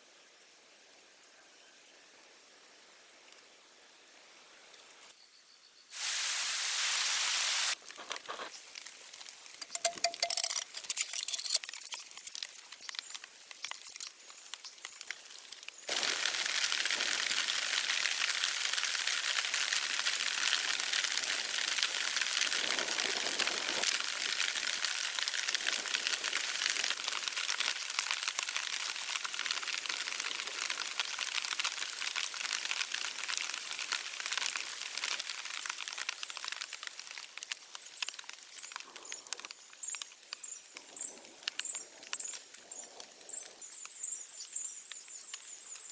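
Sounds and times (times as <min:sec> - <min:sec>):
steady even hiss: 0:05.9 - 0:11.0, 0:11.6 - 0:32.2, 0:36.3 - 0:45.9
wood fire crackling: 0:06.0 - 0:45.9.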